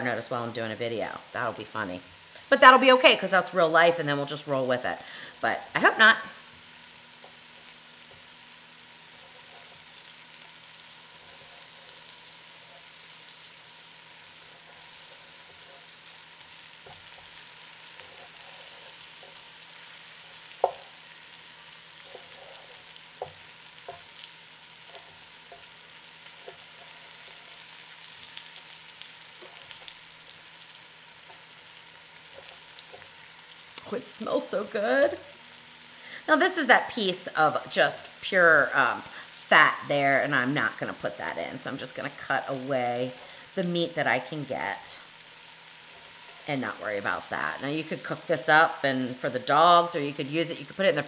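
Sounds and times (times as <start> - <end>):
meat sizzling: 0.0 - 51.0
knife tapping on wooden board: 20.6 - 20.8.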